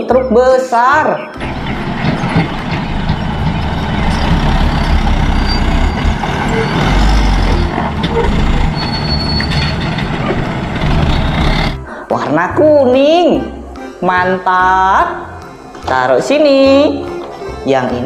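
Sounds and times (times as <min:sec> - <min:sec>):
diesel engine rumbling: 0:01.4 - 0:12.1.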